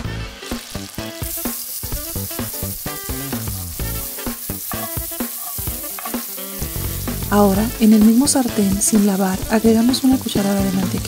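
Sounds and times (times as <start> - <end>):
background music: 0.0 - 11.0
butter sizzling in frying pan: 0.0 - 11.0
spatula stirring in pan: 0.4 - 8.8.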